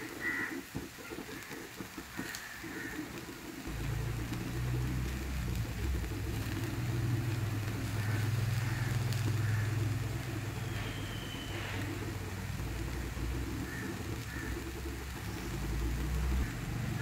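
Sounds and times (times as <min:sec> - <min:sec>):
engine idling: 0:03.7 - 0:17.0.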